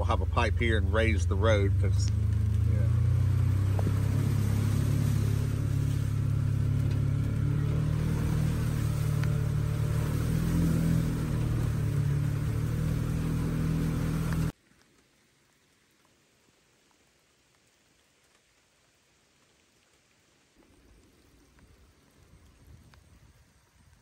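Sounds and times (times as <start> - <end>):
vehicle engine running: 0.0 - 14.5.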